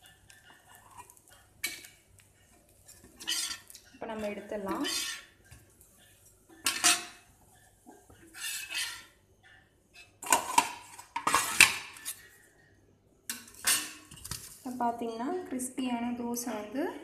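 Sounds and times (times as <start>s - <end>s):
metal spatula scraping a griddle: 0.0s - 12.4s, 13.3s - 14.4s.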